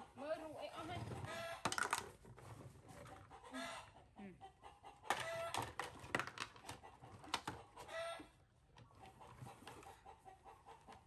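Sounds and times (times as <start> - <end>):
plastic toys knocking on wood: 1.6 - 2.2, 5.1 - 7.6.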